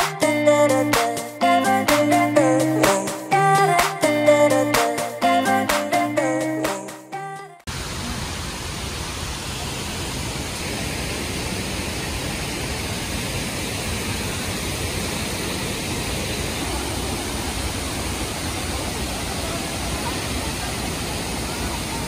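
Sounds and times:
waterfall rushing: 7.7 - 22.0.

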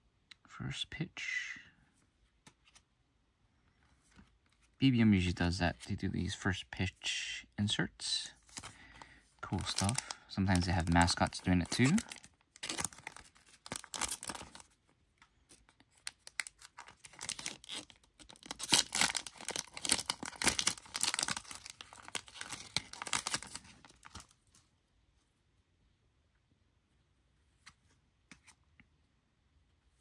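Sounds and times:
plastic wrapper crinkling: 8.4 - 14.8, 15.4 - 24.4.

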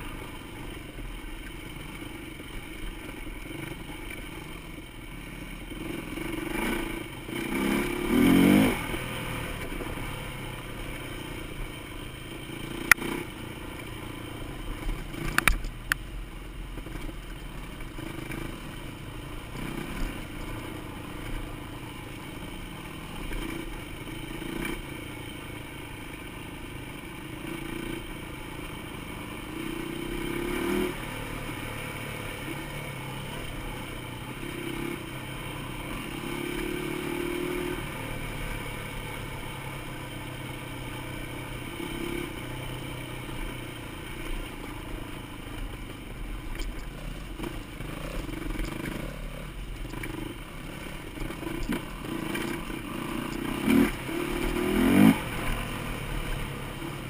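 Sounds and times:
dirt bike engine revving: 5.4 - 15.6, 19.4 - 21.5, 22.2 - 25.2, 27.0 - 57.0.

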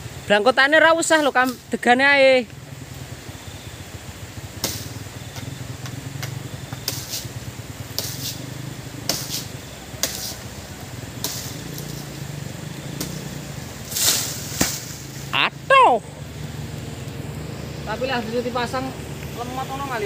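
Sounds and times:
low steady rumble: 0.0 - 20.0
sharp knocks: 13.9 - 15.0.

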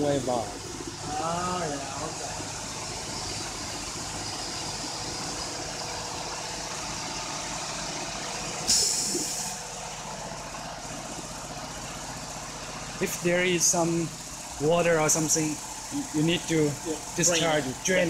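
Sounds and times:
vacuum pump running: 0.0 - 18.0
loud hiss: 8.5 - 9.8.

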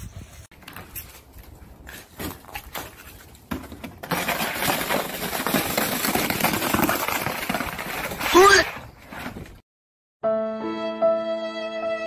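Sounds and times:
plastic sled scraping over snow: 0.6 - 9.6.

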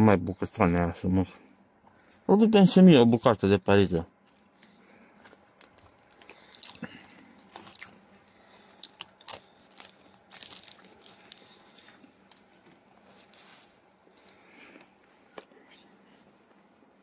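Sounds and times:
bread crackling as torn: 8.8 - 13.5
plastic bag and paper rustling: 9.4 - 14.4.

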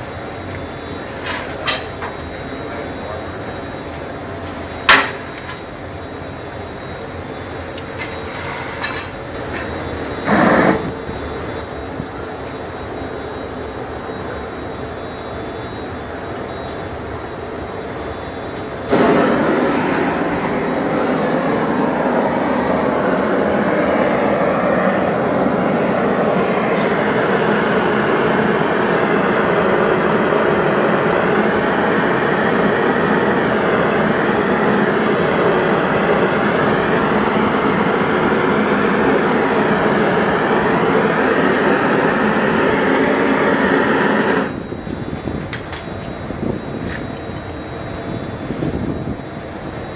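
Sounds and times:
gas torch flame rushing: 3.7 - 12.4, 18.5 - 49.3.

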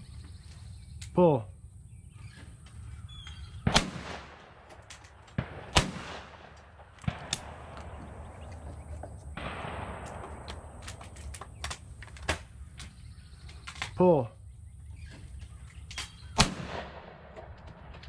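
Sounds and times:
loud shotgun shot: 3.6 - 4.7, 5.3 - 8.5, 9.3 - 11.0, 16.3 - 17.9
faint sharp cracks: 3.7 - 14.0.

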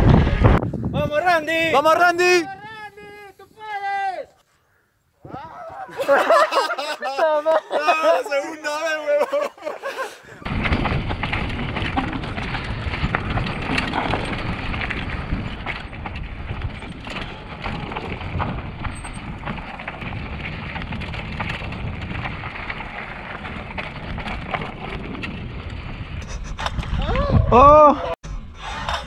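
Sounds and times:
wind buffeting microphone: 0.0 - 3.5, 10.3 - 29.0
bike rattling and knocking: 10.4 - 27.4.

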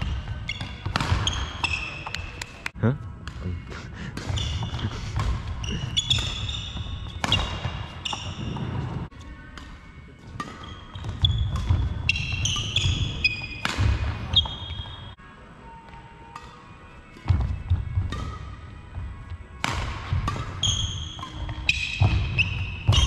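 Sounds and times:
racket hitting shuttlecock: 0.0 - 2.6, 4.1 - 8.8, 9.6 - 14.9, 16.3 - 18.6, 19.6 - 23.0
shoes squeaking on wooden floor: 4.3 - 4.9, 5.6 - 9.1, 10.5 - 13.6, 14.3 - 15.1.

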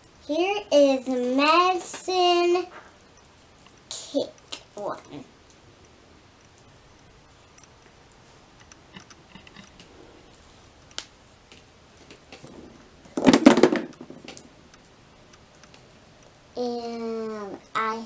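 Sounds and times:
plastic clattering on plastic: 12.1 - 14.5.

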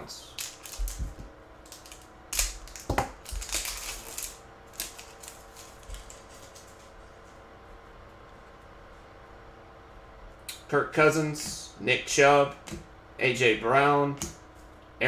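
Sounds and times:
foil wrapper crinkling and tearing: 0.2 - 7.0.

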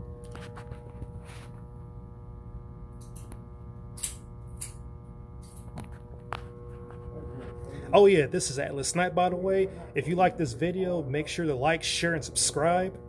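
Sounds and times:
droning hum: 0.0 - 13.0.

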